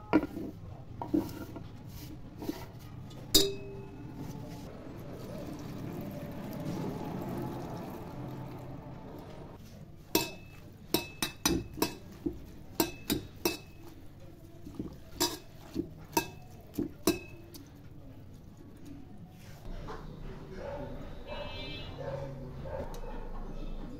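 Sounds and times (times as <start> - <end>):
leaves rubbed by hand in a bowl: 0.3 - 3.2, 4.1 - 9.0
metallic clinks on steel bowl: 3.3 - 4.0, 10.2 - 12.1, 12.8 - 13.9, 16.1 - 17.5
water pouring into a steel bowl: 5.0 - 9.0.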